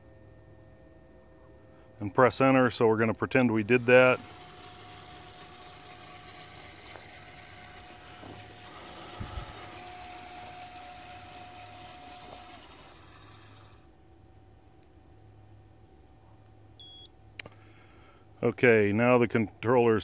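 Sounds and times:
power inverter hum: 0.0 - 18.8
drive motors whirring: 3.3 - 13.9.

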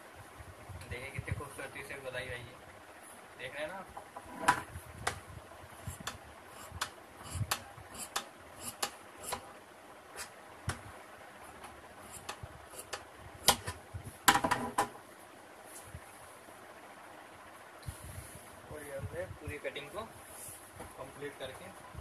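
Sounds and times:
shears snipping fabric: 5.9 - 9.4.

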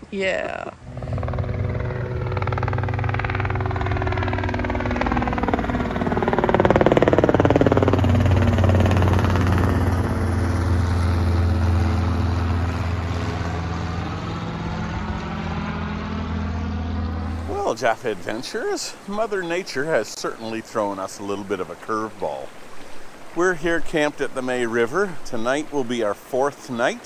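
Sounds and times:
vehicle engine passing by: 0.8 - 19.0.

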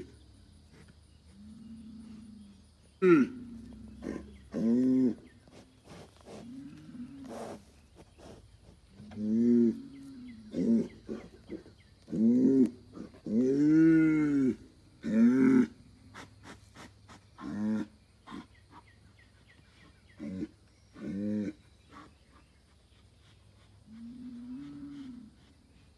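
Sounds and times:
bull bellowing: 1.4 - 7.7, 9.0 - 15.8, 23.9 - 25.4.

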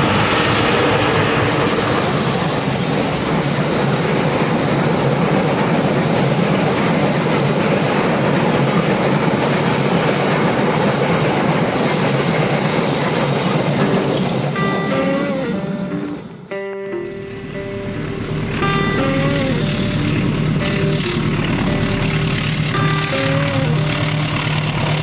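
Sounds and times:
high wheel squeal: 0.0 - 5.6, 11.5 - 16.5, 18.6 - 25.0
train wheels rumbling on rails: 0.0 - 25.0.

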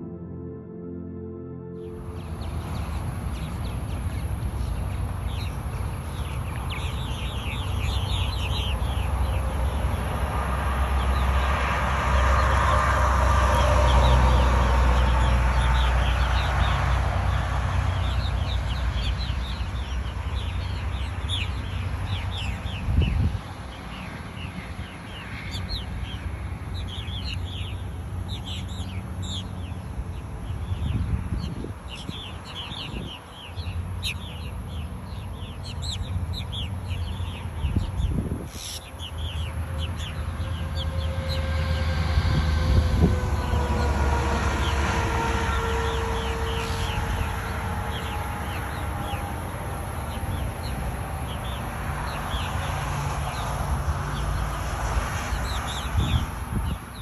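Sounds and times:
steady low rumble: 0.0 - 6.6
birds chirping and chattering: 24.0 - 41.4, 46.4 - 52.6.

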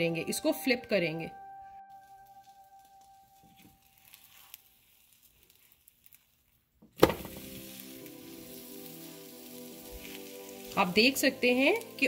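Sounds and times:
pan sizzling: 1.9 - 12.0
omelette slapping into pan: 3.6 - 8.2.

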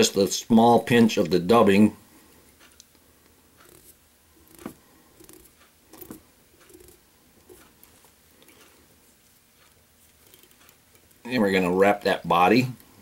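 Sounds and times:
soft handling rustles: 3.6 - 11.3.

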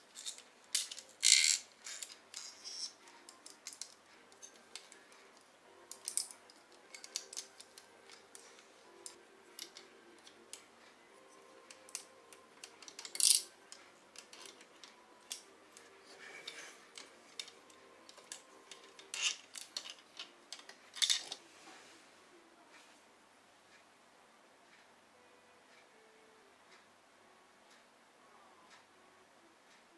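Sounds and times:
plastic bricks clicking and rattling: 0.1 - 5.0, 5.9 - 10.4, 11.7 - 13.5, 16.5 - 21.4.

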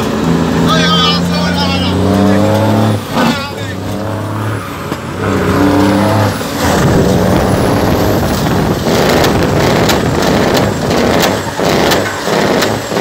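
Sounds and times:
truck diesel engine from cab: 0.0 - 13.0
sharp rattles: 6.6 - 13.0.

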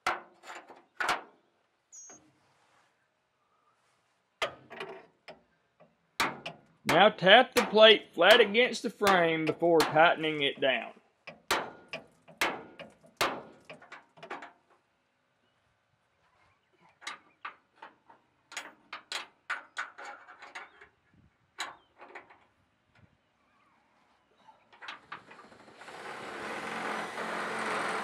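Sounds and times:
sharp knocks on steel plate: 6.2 - 10.5, 11.3 - 13.8.

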